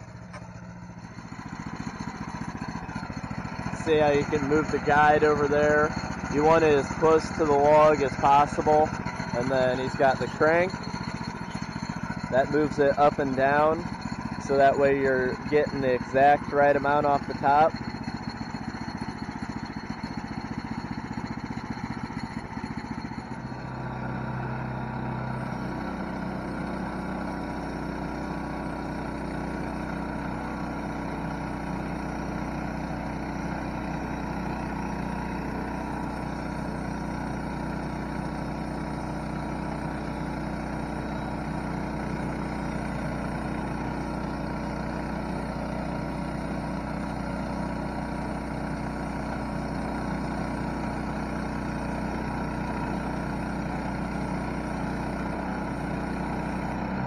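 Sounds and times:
small gasoline engine running: 0.0s - 57.0s
band saw blade cutting log: 2.3s - 21.2s.

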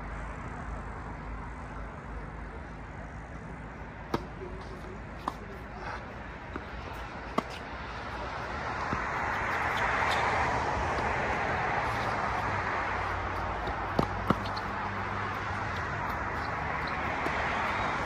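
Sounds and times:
steady rushing noise: 4.0s - 18.0s
racket hitting tennis ball: 4.1s - 18.0s
tennis ball bounce: 4.1s - 18.0s.

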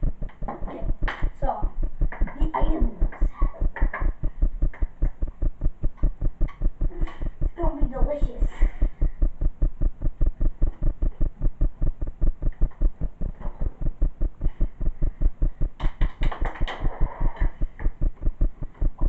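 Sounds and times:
sharp clicks and knocks: 0.0s - 8.0s, 9.0s - 19.0s
rhythmic low thumping: 0.0s - 19.0s.

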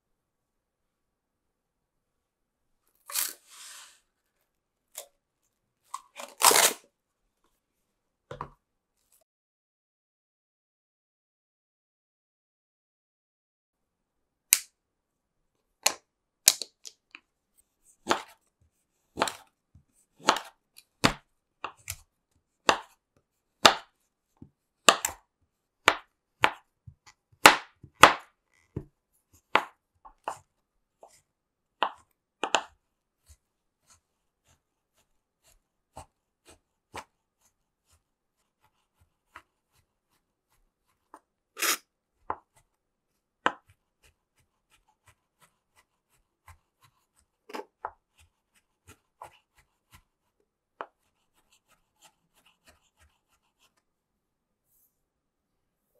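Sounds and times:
knife chopping chocolate: 18.0s - 18.4s, 19.1s - 23.0s, 23.6s - 31.2s, 31.8s - 37.2s, 40.8s - 42.8s, 43.4s - 53.8s.

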